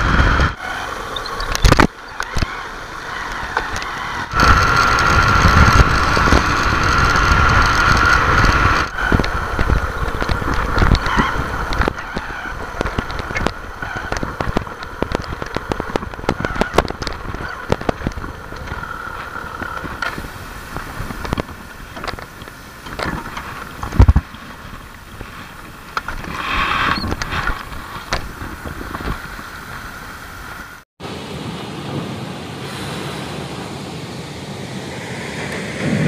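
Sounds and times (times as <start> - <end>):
motorcycle engine running: 0.0 - 26.3
wind noise on microphone: 0.0 - 30.8.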